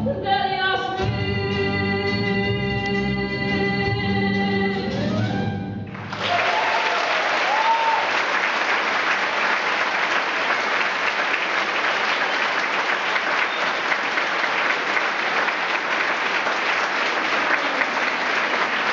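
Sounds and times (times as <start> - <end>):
audience applauding: 5.9 - 18.9.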